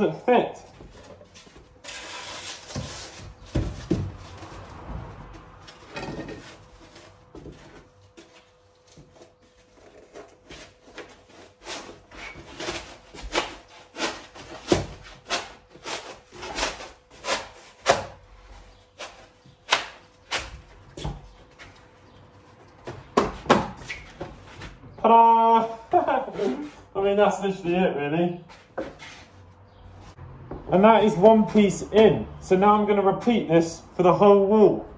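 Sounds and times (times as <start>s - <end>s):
foam scraping against wood: 25.9s - 27.0s.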